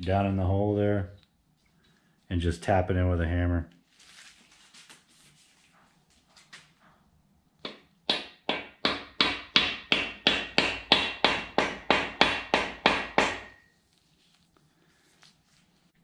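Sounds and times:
hammer tapping metal ringing: 7.7s - 13.7s.

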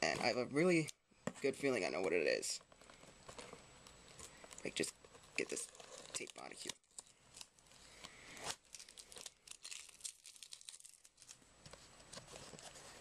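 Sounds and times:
packaging crinkling and rustling: 2.7s - 13.0s
packing tape ripping off box: 8.3s - 11.4s.

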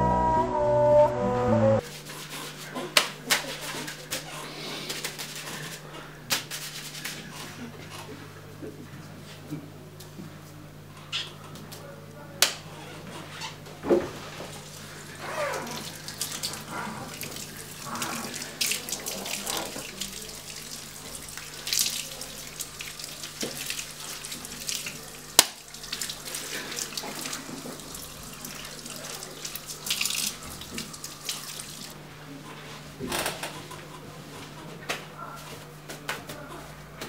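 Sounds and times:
shower sprayer running water: 14.2s - 32.0s
water splashing: 14.6s - 32.0s.

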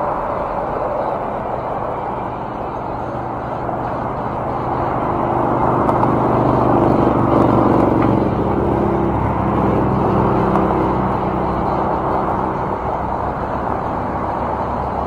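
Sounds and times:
cars driving past: 0.0s - 15.0s.

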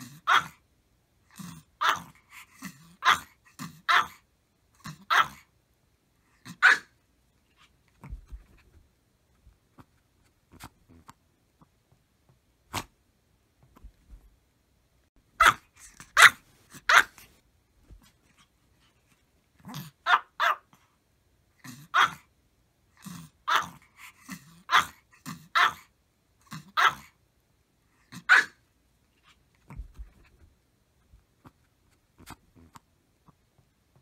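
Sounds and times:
puppy barking: 0.0s - 0.6s, 1.8s - 2.2s, 2.8s - 4.2s, 4.8s - 5.5s, 6.5s - 7.0s, 15.4s - 17.3s, 20.0s - 20.8s, 21.9s - 22.3s, 23.5s - 23.8s, 24.7s - 25.9s, 26.6s - 27.1s, 28.2s - 28.6s.

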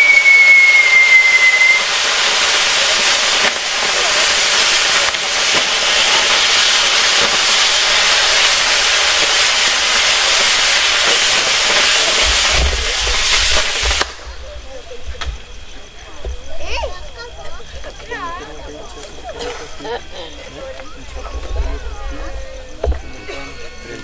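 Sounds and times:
firework whistle sliding down: 0.0s - 14.5s
fireworks hissing: 0.0s - 24.0s.

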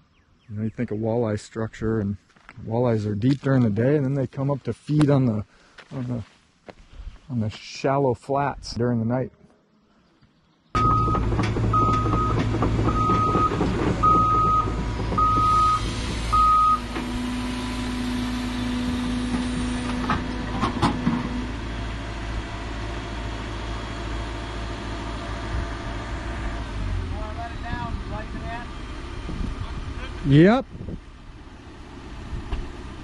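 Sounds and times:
travel alarm beeping: 10.8s - 16.8s
excavator diesel engine: 10.8s - 33.0s.

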